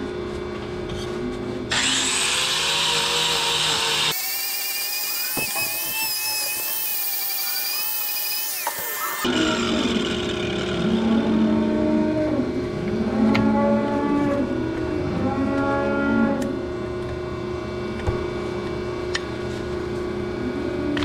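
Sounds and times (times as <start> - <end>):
steady low hum: 9.2 - 21.0
cow mooing: 10.7 - 16.6.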